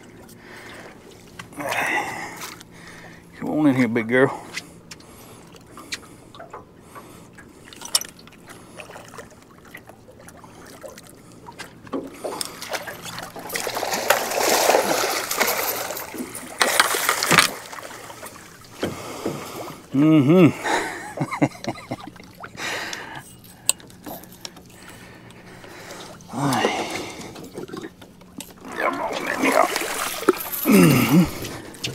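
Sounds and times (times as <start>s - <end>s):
water splashing and sloshing: 0.0s - 31.9s.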